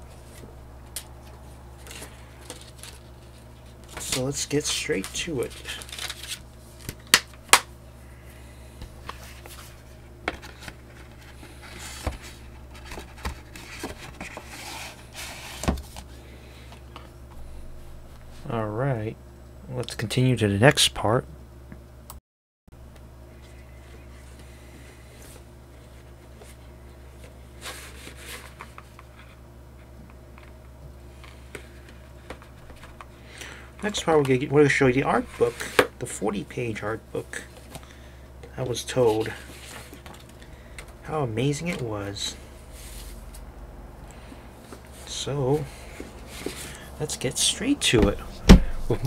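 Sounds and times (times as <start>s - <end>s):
steady low hum: 0.0s - 22.2s, 22.8s - 49.0s
packaging rustling: 1.2s - 7.2s.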